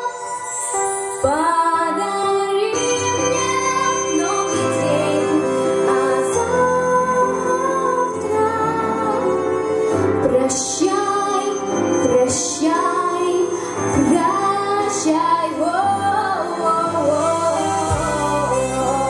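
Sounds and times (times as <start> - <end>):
instrumental accompaniment: 0.0 - 19.0
girl singing slow song: 10.2 - 19.0.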